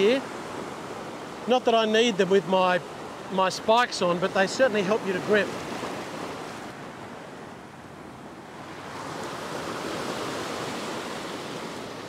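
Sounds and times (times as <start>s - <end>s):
ocean waves washing over rock: 0.0s - 7.3s.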